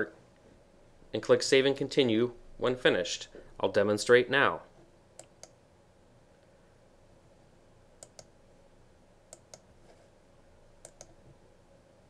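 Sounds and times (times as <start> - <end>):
quiet room hiss: 0.0 - 12.0
computer mouse clicks: 5.2 - 5.6, 8.0 - 8.3, 9.3 - 9.7, 10.8 - 11.3.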